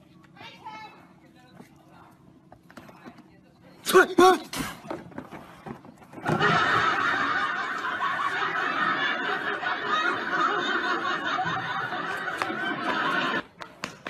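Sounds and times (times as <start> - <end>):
people laughing: 6.1 - 13.5.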